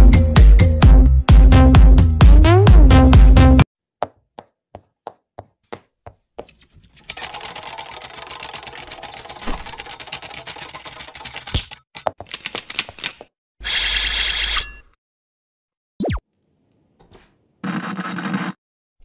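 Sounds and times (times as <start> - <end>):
fast clicking clatter: 7.1 - 13.2.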